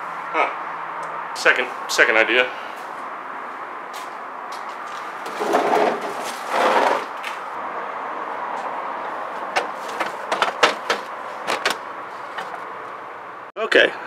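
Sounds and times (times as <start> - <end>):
plastic bin scraping on concrete: 5.2 - 7.3.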